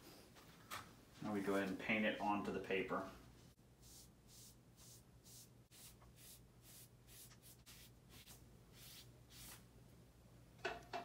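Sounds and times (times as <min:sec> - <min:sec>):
paintbrush swishing on paper: 0:03.5 - 0:09.7.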